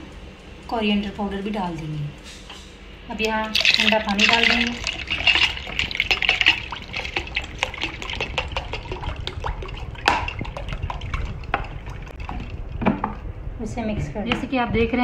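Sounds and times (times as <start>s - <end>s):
water pouring into a jug: 3.2s - 13.2s.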